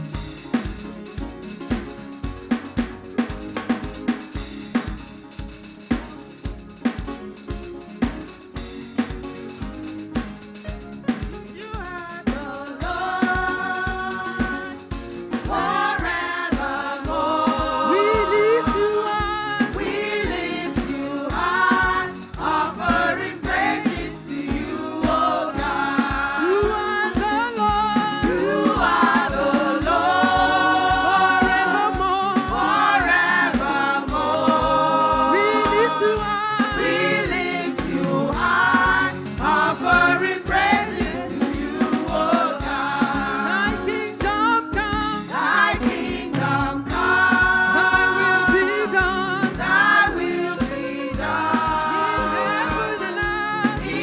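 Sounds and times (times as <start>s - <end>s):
shaker rattling: 0.0s - 45.9s, 46.8s - 54.0s
band playing: 0.0s - 54.0s
steady drum beat: 0.0s - 54.0s
voices singing together: 11.6s - 54.0s.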